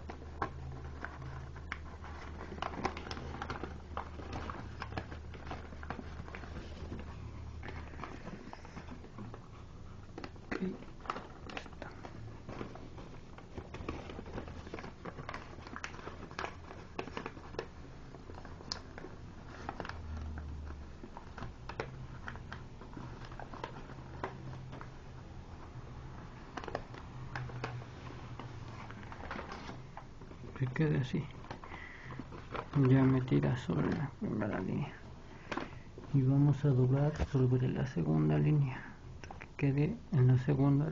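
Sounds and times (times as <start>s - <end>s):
paper creasing crackles: 0.0s - 39.0s
paper rustling and crinkling: 0.0s - 40.9s.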